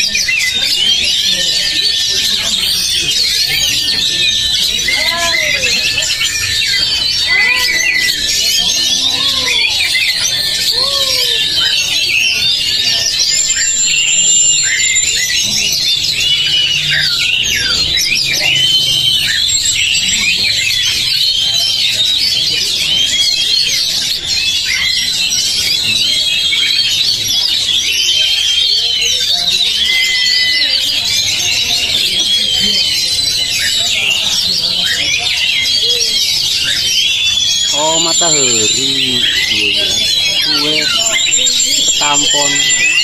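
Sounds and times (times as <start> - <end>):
birds singing in chorus: 0.0 - 43.0
lower rising and falling bird calls: 34.5 - 43.0.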